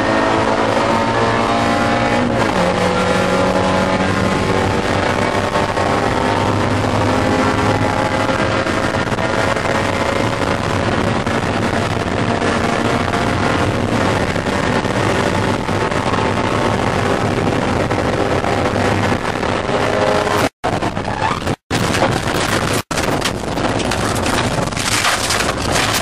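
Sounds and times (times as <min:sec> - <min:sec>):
car engine at high revs: 0:00.0 - 0:26.0
wind and road noise: 0:00.0 - 0:26.0.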